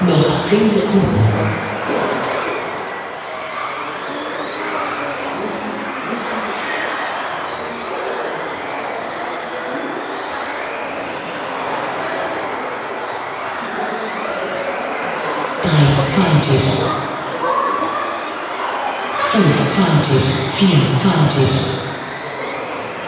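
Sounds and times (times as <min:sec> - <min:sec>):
electric rc car motors whining: 0:01.5 - 0:15.6, 0:22.1 - 0:23.0.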